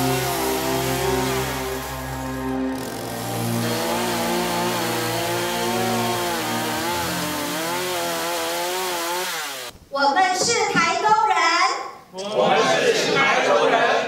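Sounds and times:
chainsaw cutting wood: 0.0s - 9.7s.

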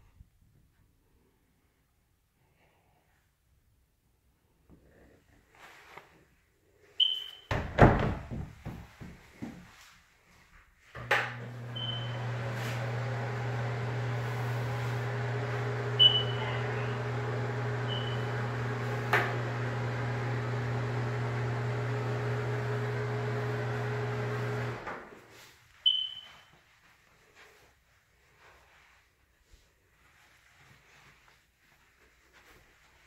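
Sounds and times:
exhaust fan humming: 11.1s - 25.4s
short high squeaks: 25.8s - 26.6s.

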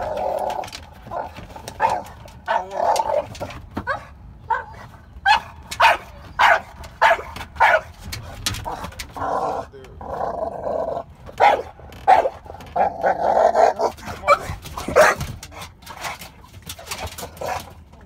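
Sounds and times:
dog barking sharply: 3.9s - 7.9s, 11.4s - 12.4s, 13.8s - 15.2s.

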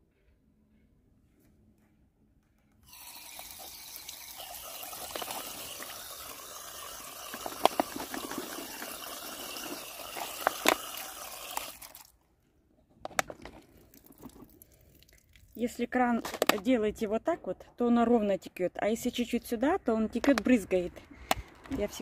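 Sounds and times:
water splashing over grapes: 2.9s - 12.1s.

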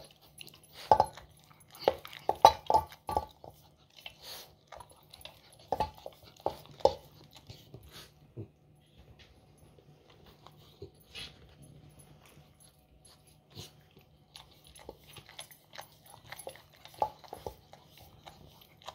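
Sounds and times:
dog sniffing: 5.4s - 8.2s.

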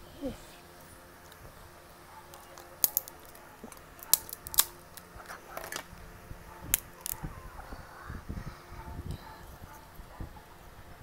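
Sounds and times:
shellfish shell cracking: 2.3s - 5.9s, 6.7s - 7.2s.

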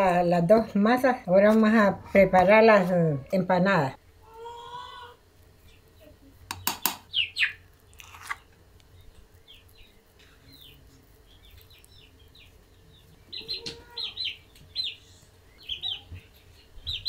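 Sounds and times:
faint low hum: 0.0s - 17.0s
chickens chirping: 4.2s - 8.2s, 8.9s - 17.0s.

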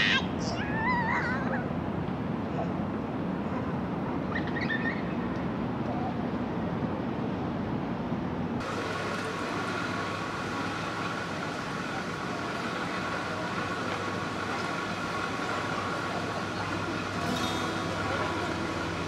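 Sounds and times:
steady hum with held tones: 8.1s - 19.0s.

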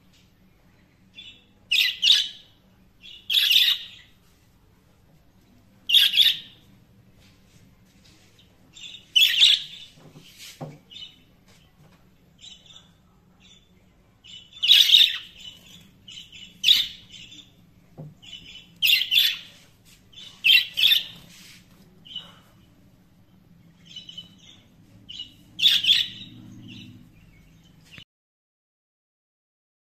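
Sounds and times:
budgerigars chirping: 1.2s - 4.1s, 5.9s - 6.6s, 8.8s - 10.0s, 14.3s - 17.6s, 18.2s - 19.6s, 20.2s - 21.3s, 23.8s - 27.7s.

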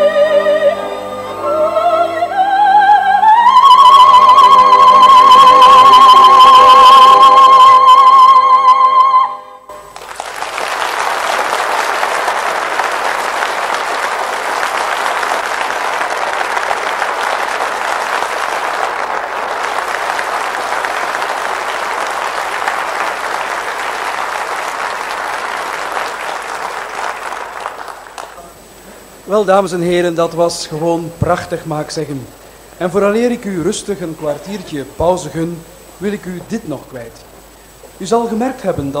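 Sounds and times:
held sung note with vibrato: 0.0s - 9.8s
audience applauding: 9.7s - 28.8s.

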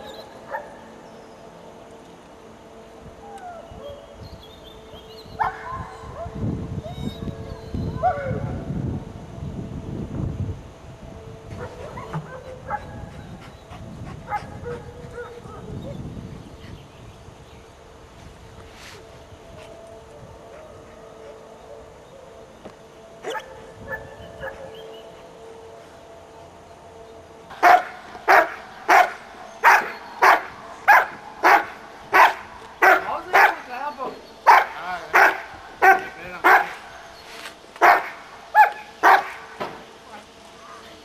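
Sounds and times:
dog barking: 14.3s - 15.7s, 23.2s - 24.7s, 27.6s - 33.7s, 34.5s - 36.8s, 37.8s - 39.4s.

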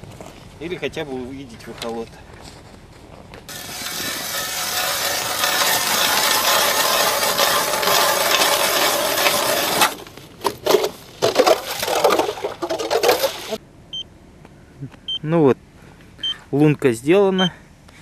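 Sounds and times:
ice auger grinding through ice: 3.5s - 13.6s.

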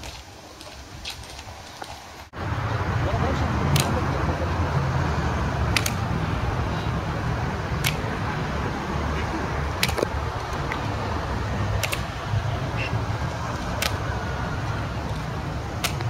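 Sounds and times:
low rumble of traffic: 0.0s - 16.0s
clogs clacking on marble pavement: 9.1s - 10.9s.

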